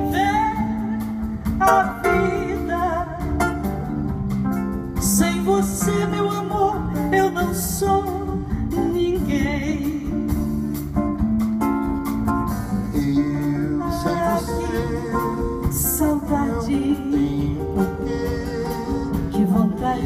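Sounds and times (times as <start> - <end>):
woman singing with vibrato: 0.0 - 3.6, 5.0 - 10.4, 13.0 - 20.0
acoustic guitar: 0.0 - 20.0
bass: 0.0 - 20.0
drums: 0.0 - 20.0.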